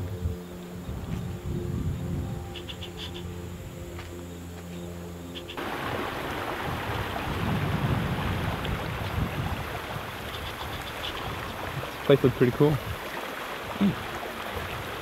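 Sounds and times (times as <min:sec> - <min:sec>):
wind buffeting microphone: 0:00.0 - 0:02.7, 0:05.6 - 0:15.0
floodwater rushing: 0:05.6 - 0:15.0.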